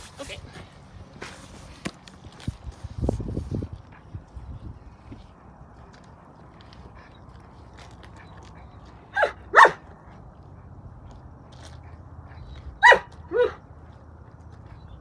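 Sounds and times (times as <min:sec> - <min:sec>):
dog barking: 0:09.2 - 0:09.8, 0:12.8 - 0:13.6.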